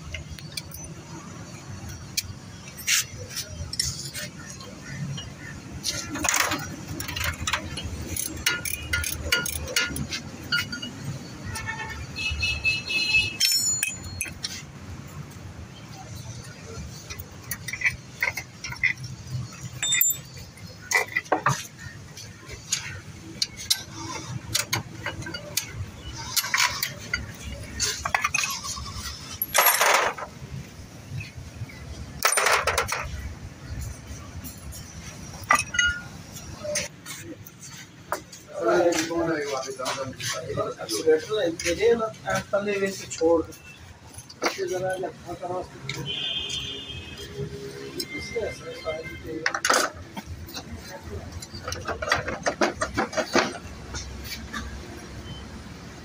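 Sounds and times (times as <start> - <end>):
metal parts clanking: 5.1 - 11.6, 13.3 - 14.6, 16.9 - 21.8, 22.6 - 30.4, 32.1 - 36.9, 49.4 - 54.7
spanner clicking on bolts: 7.0 - 11.1, 17.1 - 21.3
ringing metal clinks: 13.4 - 14.5, 19.5 - 20.6.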